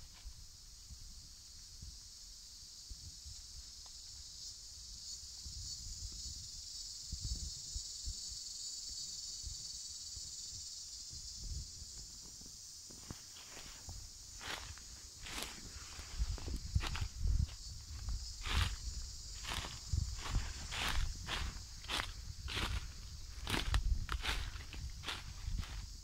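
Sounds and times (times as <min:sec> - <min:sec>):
shrill insect chorus: 0:00.0 - 0:26.0
low thumps of footsteps: 0:13.0 - 0:26.0.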